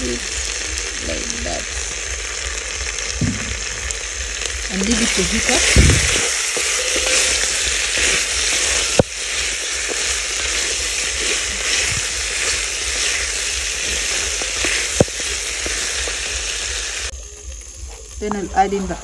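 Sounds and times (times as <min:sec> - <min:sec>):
meat sizzling in hot oil: 0:00.0 - 0:18.4
wooden spoon stirring in pot: 0:04.6 - 0:16.1.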